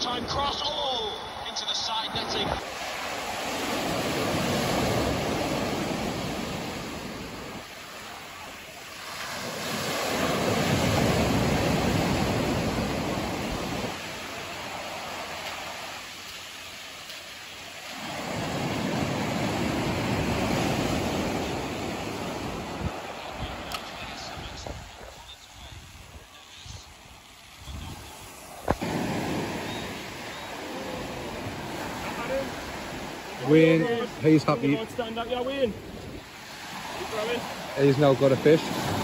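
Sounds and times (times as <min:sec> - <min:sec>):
surf breaking on a sandy beach: 0:00.0 - 0:39.0.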